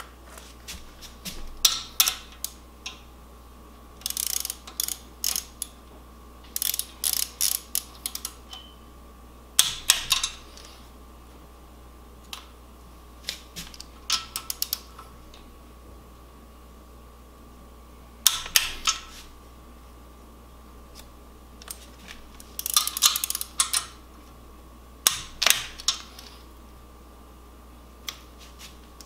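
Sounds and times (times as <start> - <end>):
hand ratchet clicking: 4.0 - 5.7, 6.5 - 8.7, 13.7 - 15.0, 22.4 - 23.9.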